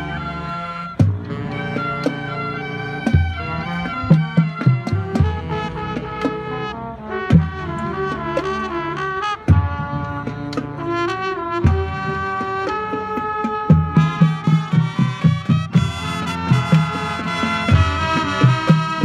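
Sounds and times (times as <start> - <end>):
marching band playing: 0.0 - 19.0
drum hits: 11.6 - 19.0.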